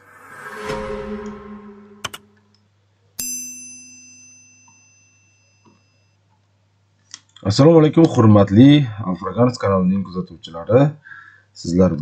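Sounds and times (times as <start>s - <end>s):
whoosh: 0.0s - 2.6s
mouse click: 2.0s - 2.2s
bell-like notification ding: 3.2s - 6.1s.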